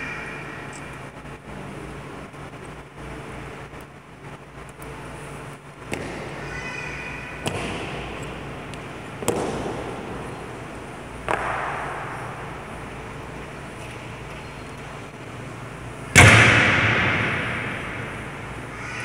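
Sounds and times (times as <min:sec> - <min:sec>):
loud ringing bang: 0:16.1 - 0:18.6.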